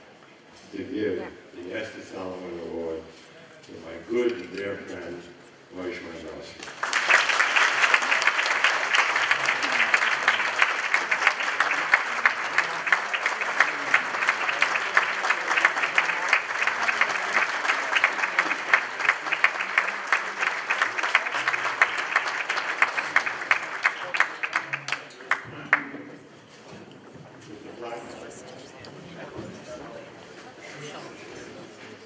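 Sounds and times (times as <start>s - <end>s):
audience applauding: 6.6s - 26.1s.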